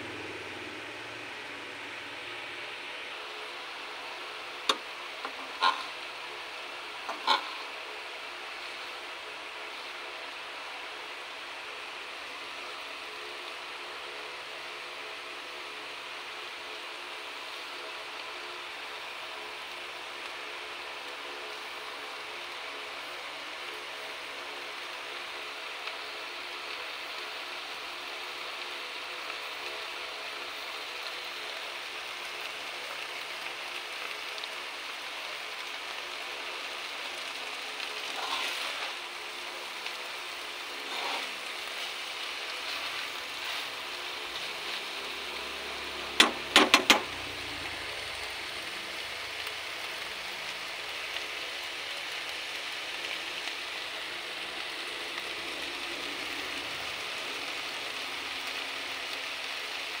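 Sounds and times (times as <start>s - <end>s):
food sizzling in a pan: 0.0s - 60.0s
metal spatula stirring: 38.0s - 39.0s, 40.8s - 44.8s
spatula knocking on pan: 46.2s - 47.1s.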